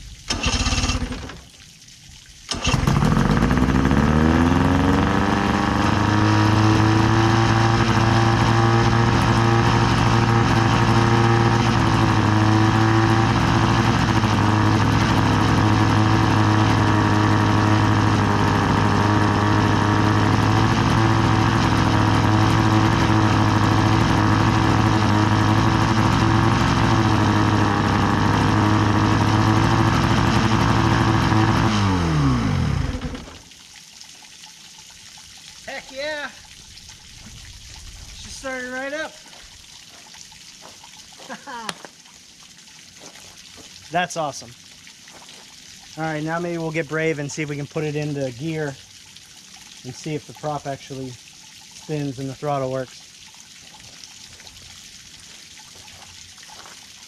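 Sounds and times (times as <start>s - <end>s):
outboard motor idling: 0.0s - 1.5s, 2.5s - 33.5s.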